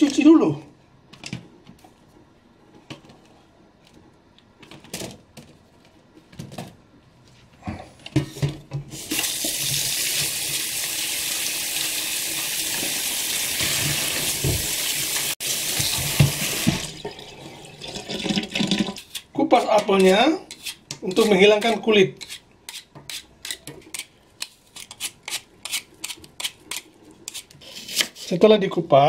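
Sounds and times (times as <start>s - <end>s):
tap water splashing in sink: 13.6s - 15.0s, 15.6s - 17.2s.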